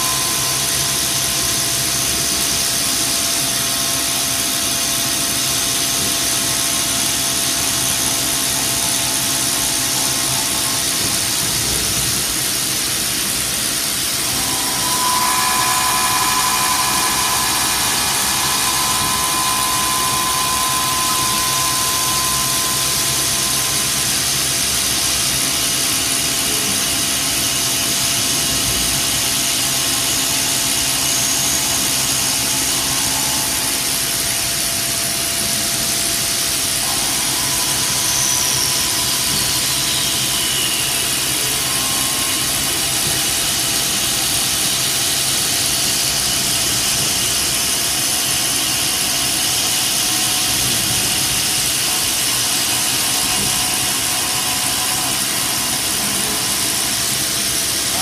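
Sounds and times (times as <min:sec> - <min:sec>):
high cutting tone: 0:00.0 - 0:04.6, 0:12.5 - 0:27.8, 0:29.4 - 0:45.1, 0:48.0 - 0:58.0
milling machine whine: 0:00.0 - 0:58.0.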